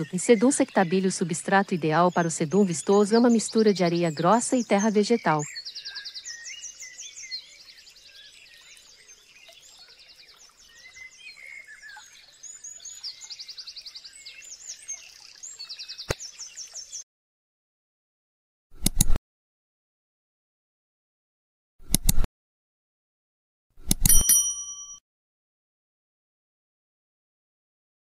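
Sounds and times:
songbirds chirping and trilling: 0:00.0 - 0:17.0
sharp click: 0:18.8 - 0:19.2, 0:21.8 - 0:22.3, 0:23.8 - 0:24.6.

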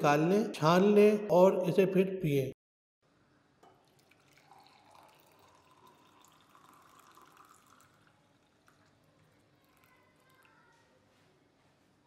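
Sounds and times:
liquid pouring and dripping: 0:03.6 - 0:10.8.

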